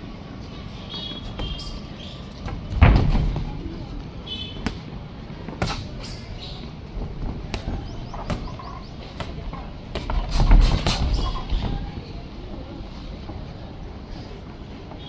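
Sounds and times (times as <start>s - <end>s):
boxing glove punches: 4.6s - 4.9s.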